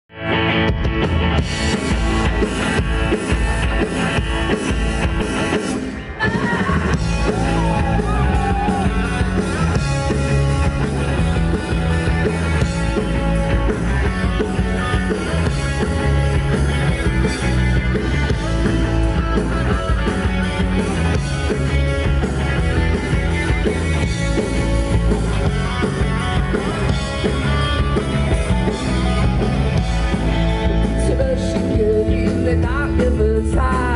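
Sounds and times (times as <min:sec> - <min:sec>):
bass guitar: 0:00.0 - 0:33.9
distorted electric guitars: 0:00.1 - 0:33.9
drum kit: 0:00.3 - 0:33.9.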